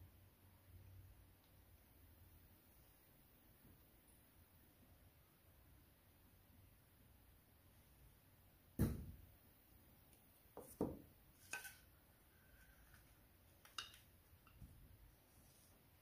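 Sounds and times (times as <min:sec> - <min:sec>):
metal tart pans clinking: 0:11.4 - 0:11.9.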